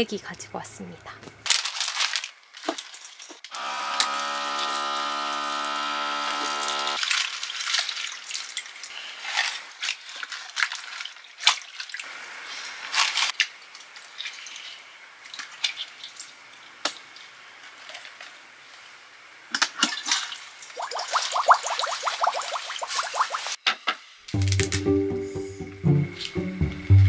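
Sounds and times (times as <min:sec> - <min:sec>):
cabbage leaves rustling: 0:01.5 - 0:03.6, 0:07.0 - 0:11.6, 0:12.4 - 0:13.4
electric pump whirring: 0:03.5 - 0:07.0
water dripping and splashing: 0:06.6 - 0:18.9, 0:19.5 - 0:23.6
water running into sink: 0:20.8 - 0:23.6.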